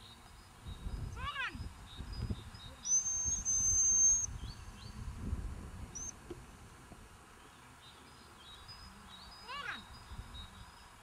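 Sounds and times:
faint bird chirps: 0.0 - 5.0, 7.4 - 11.0.

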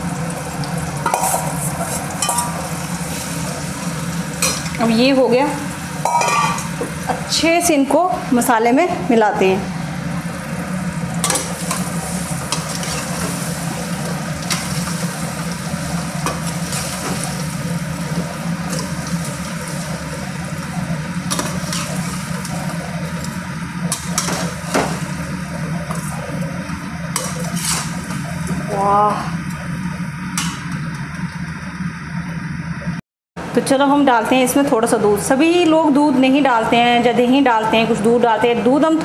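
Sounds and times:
potatoes sizzling in oil: 0.0 - 8.5, 10.2 - 29.2
steady low hum: 0.0 - 39.0.

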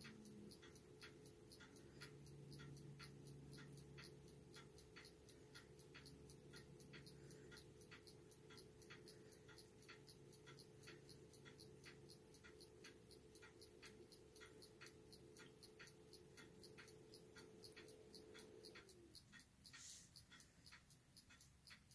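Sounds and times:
faint even ticking: 0.0 - 21.9
small fan humming: 0.0 - 21.9.

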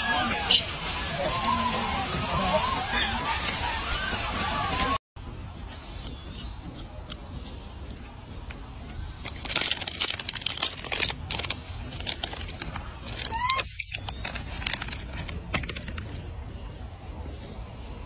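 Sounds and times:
plastic packet crinkling: 9.3 - 15.8.

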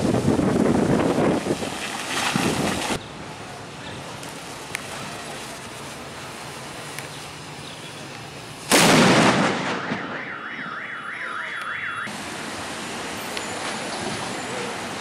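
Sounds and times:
firework explosion: 8.6 - 10.3
car alarm warbling: 9.7 - 12.1.

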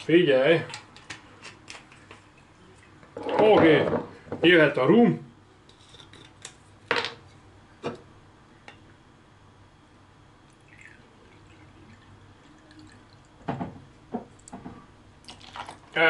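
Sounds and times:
liquid trickling into jigger: 10.6 - 13.4, 15.2 - 16.0.

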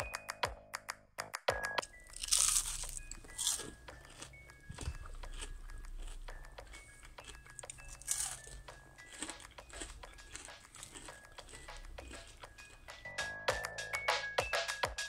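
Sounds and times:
light background music: 0.0 - 15.0
crunching fried onion rings: 1.8 - 13.1.

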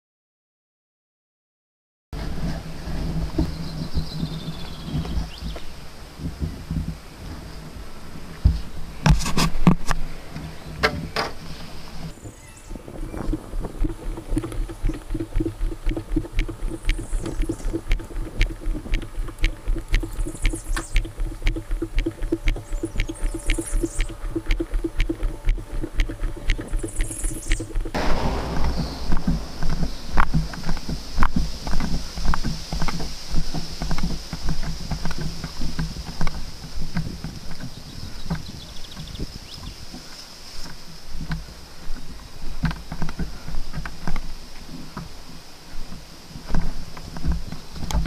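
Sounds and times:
plastic kayak knocking and rattling: 2.2 - 7.0, 12.9 - 28.1
low rumble of wind on microphone: 2.2 - 48.0
footsteps on tarmac: 2.9 - 7.0, 12.8 - 45.1.

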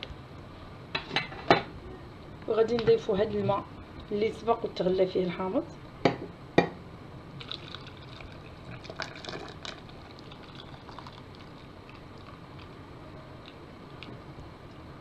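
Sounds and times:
water pouring into glass jar: 7.4 - 12.4.

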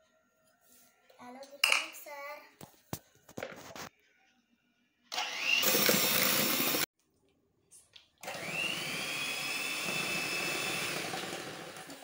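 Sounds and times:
electric hand mixer whine: 5.2 - 6.9, 8.2 - 12.0.

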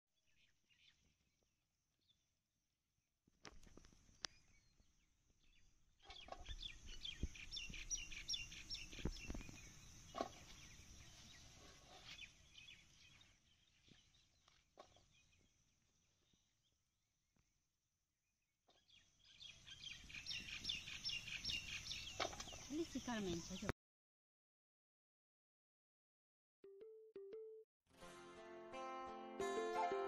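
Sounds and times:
birds chirping: 4.2 - 15.5, 18.7 - 23.7.

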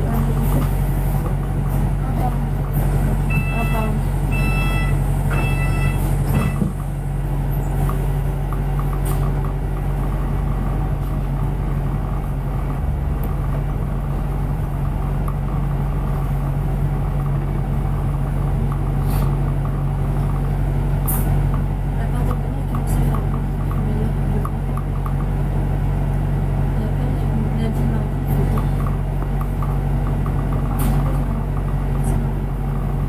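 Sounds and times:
bus engine drone: 0.0 - 33.0
road rumble: 0.0 - 33.0.

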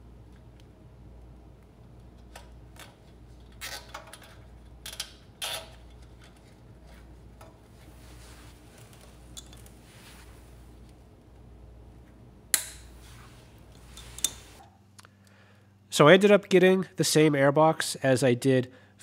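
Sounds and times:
steady low hum: 0.0 - 19.0
soft rustle: 6.8 - 11.1, 12.9 - 14.6.

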